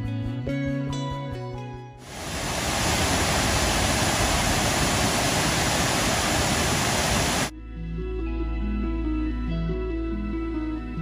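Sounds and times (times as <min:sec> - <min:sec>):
waterfall rushing into a pool: 0:02.0 - 0:07.5.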